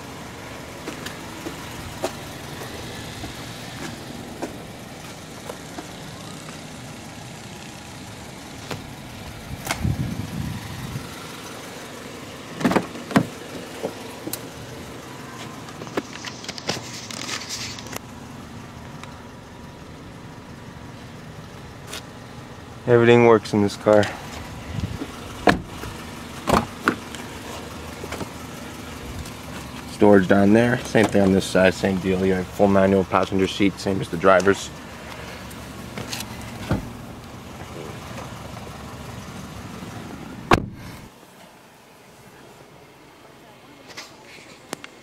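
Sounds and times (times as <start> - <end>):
car engine idling: 0.0 - 45.0
brief rustle: 16.0 - 18.0.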